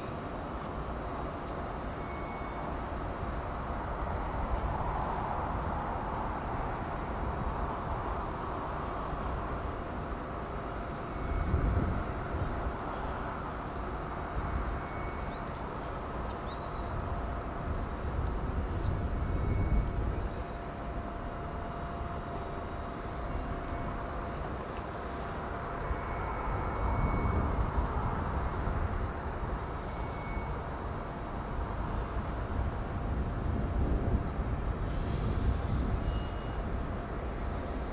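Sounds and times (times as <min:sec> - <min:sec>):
faint steady tone: 0:00.0 - 0:37.9.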